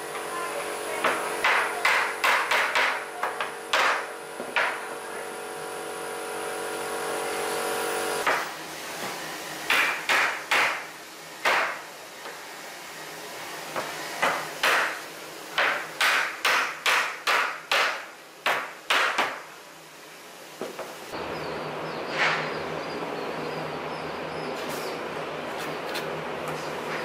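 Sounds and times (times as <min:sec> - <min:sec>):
sharp wooden knocks: 0:01.0 - 0:04.8, 0:09.7 - 0:10.8, 0:15.6 - 0:19.4.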